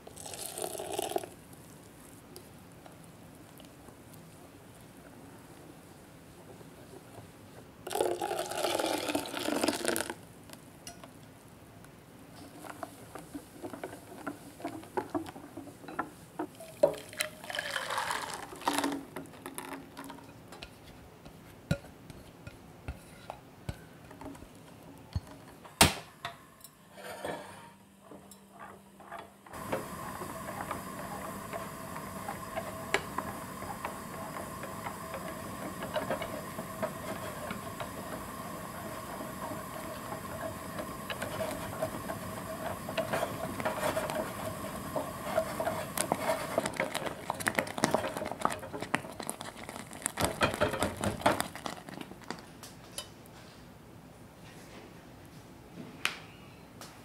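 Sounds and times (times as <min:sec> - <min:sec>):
liquid pouring: 0:00.0 - 0:01.4, 0:07.9 - 0:10.2, 0:16.6 - 0:20.1
whisk stirring custard in pot: 0:28.5 - 0:52.3
gas burner hissing: 0:29.5 - 0:49.4.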